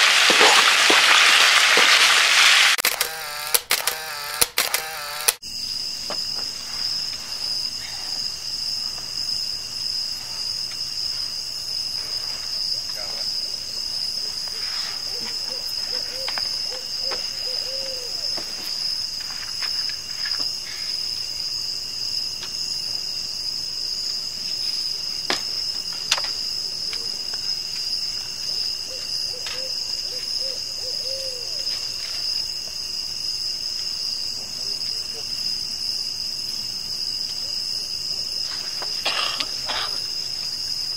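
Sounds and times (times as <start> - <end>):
crickets trilling: 0.0 - 40.9
sharp clicks: 2.8 - 5.4.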